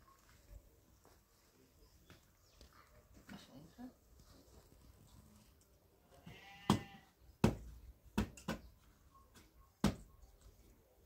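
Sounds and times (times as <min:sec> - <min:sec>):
farm animal bleating: 0:06.0 - 0:07.2.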